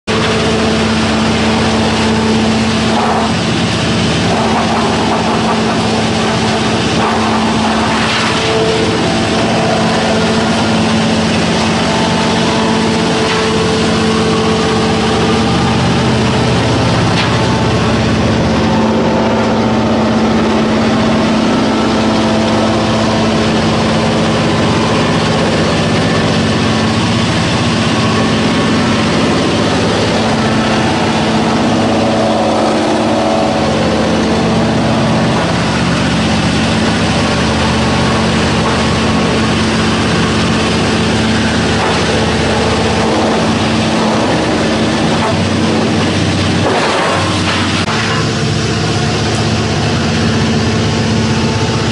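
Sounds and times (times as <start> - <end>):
sawdust machine humming: 0.0 - 51.9
wood grinding: 0.5 - 19.6, 27.8 - 48.3.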